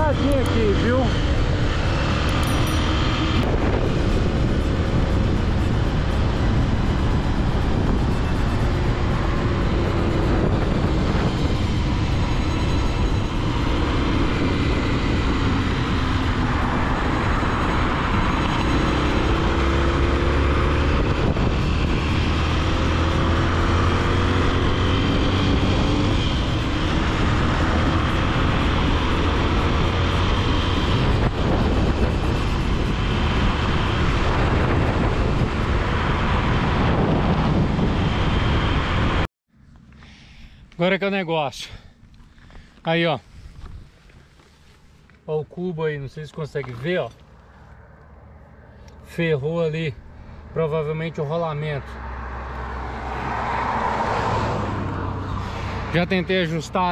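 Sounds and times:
motorcycle engine running: 0.0 - 40.6
wind and road noise: 0.0 - 56.9.

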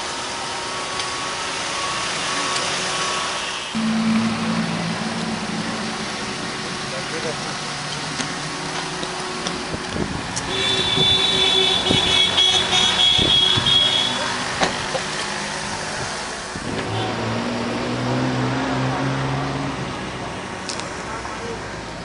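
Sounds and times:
road traffic noise: 0.0 - 22.0
low engine drone: 3.7 - 9.7.

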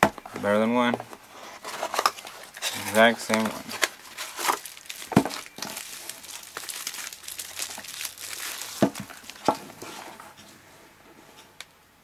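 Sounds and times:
bubble wrap crinkling: 1.4 - 10.2.

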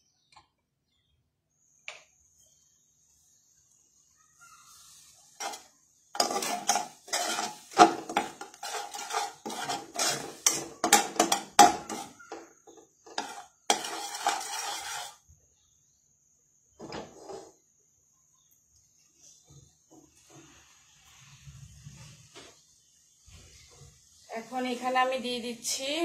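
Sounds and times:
spatula scraping metal wok: 4.7 - 15.2, 17.0 - 17.6.

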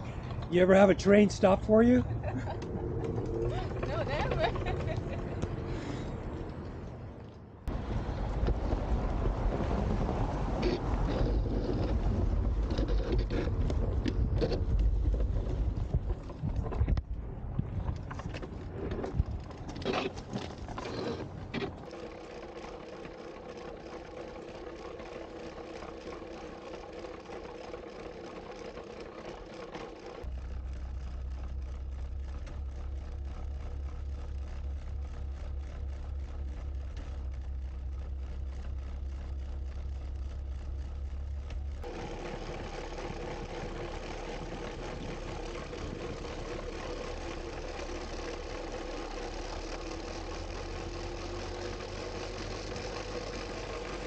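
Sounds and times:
electric drive hum: 0.0 - 54.0
wheels rattling on rails: 0.0 - 54.0
wind noise: 7.7 - 20.6.

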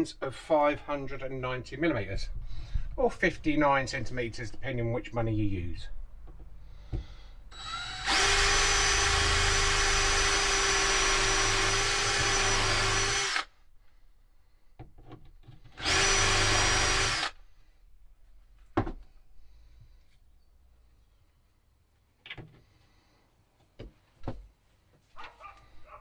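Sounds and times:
cordless drill drilling into wood: 7.5 - 13.5, 15.8 - 17.4.

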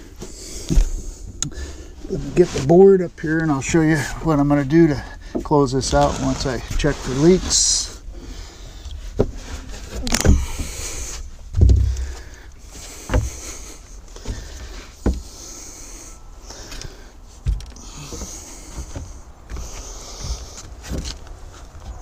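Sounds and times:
wooden board knocks and thumps: 11.5 - 12.2, 13.1 - 13.4, 14.3 - 15.3.

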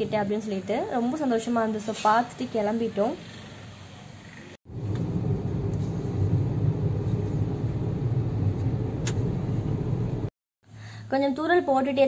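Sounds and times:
car road and engine rumble: 4.7 - 10.3
brief click: 9.0 - 9.3.

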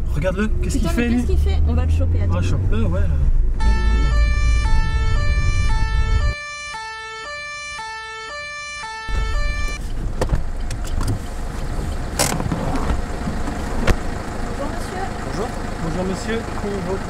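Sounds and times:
car rumbling on road: 0.0 - 6.4, 9.1 - 17.0
two-tone police siren: 3.6 - 9.8.

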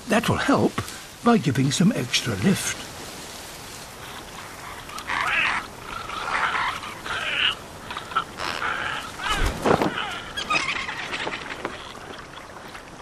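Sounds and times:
raspy creature calls: 4.0 - 12.0.

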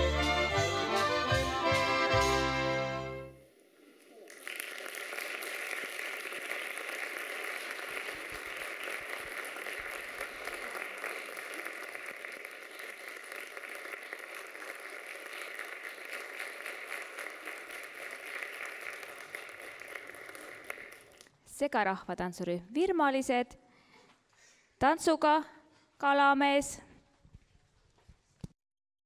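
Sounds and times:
audience applauding: 4.0 - 21.3.

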